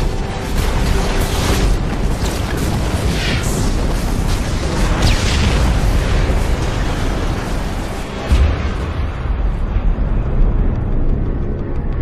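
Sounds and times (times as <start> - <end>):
background music: 0.0 - 12.0
sharp blasts: 0.4 - 9.4
rumbling explosion booms: 2.9 - 11.1.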